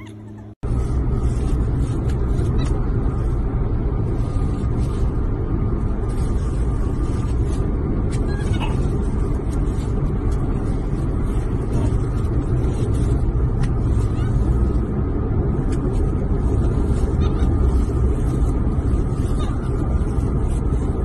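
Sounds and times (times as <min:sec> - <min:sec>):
car road and engine rumble: 0:00.0 - 0:21.0.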